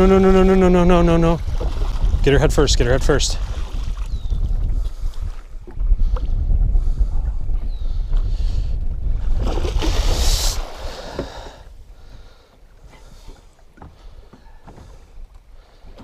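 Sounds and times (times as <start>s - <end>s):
water splashing: 0.0s - 5.5s, 9.3s - 11.7s
wind rumble on microphone: 0.0s - 14.2s.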